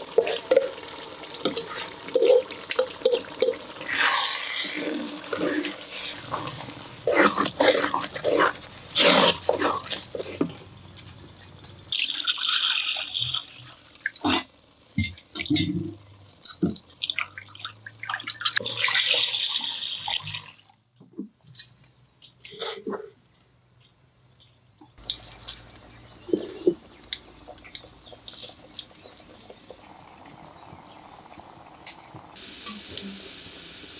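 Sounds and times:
clay pots knocking and clinking: 0.0s - 3.8s
water pouring into pot: 0.0s - 10.1s, 11.9s - 16.2s, 16.8s - 20.7s
spatula scraping clay pot: 7.1s - 10.6s.

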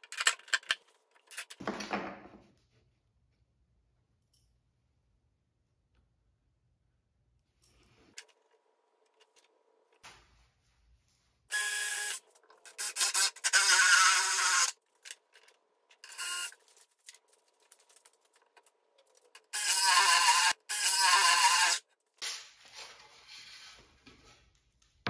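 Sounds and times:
drill boring into wood: 11.5s - 12.2s, 12.8s - 14.8s, 19.6s - 21.8s.

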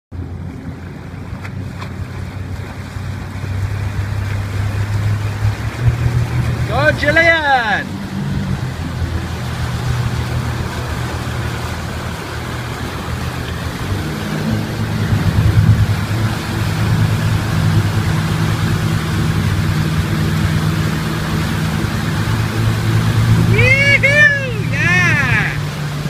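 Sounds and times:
motorboat engine running: 0.1s - 26.0s
wind: 0.1s - 26.0s
churning wake hissing: 0.2s - 26.0s.

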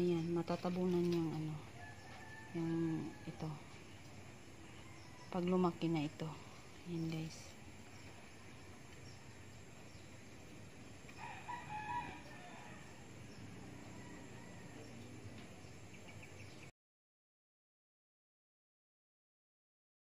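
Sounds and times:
low background hiss: 0.0s - 16.7s
rooster crowing: 1.7s - 3.7s, 11.2s - 15.2s.

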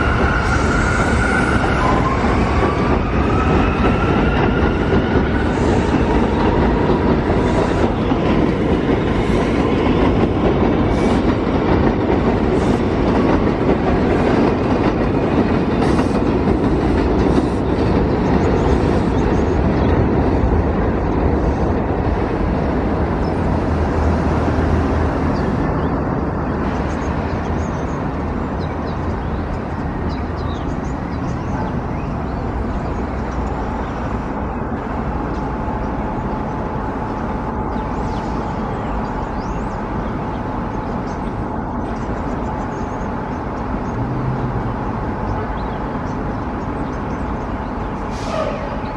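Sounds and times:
train rumbling on elevated track: 0.0s - 48.9s.

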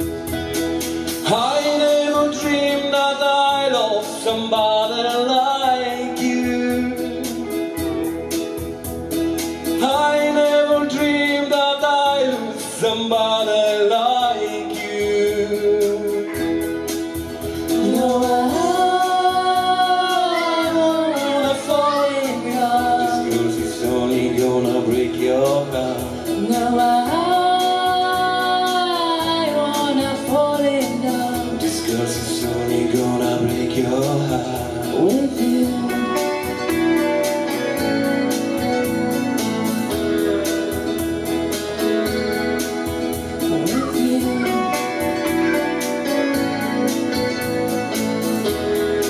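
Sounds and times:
electric keyboard: 0.0s - 49.0s
woman singing with vibrato: 17.7s - 25.4s, 26.1s - 33.4s, 43.4s - 45.8s.

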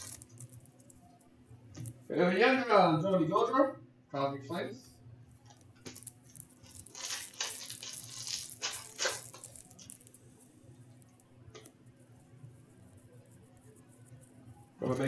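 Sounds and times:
foil pack crinkling: 0.0s - 0.6s, 5.8s - 10.2s.

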